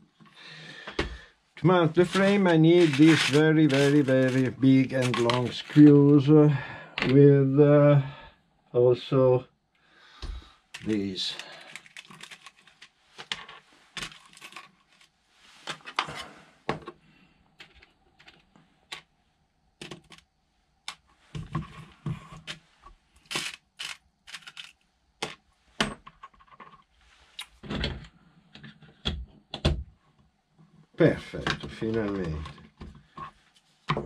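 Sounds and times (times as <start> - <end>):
metal screws and plastic parts clicking: 10.7 - 13.4, 23.2 - 24.8.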